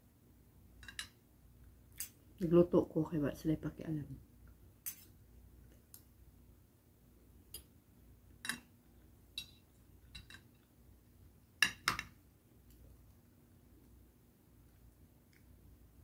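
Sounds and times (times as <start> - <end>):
cutlery clinking on a plate: 0.8 - 1.2, 4.8 - 5.1, 8.4 - 8.7, 9.4 - 10.5.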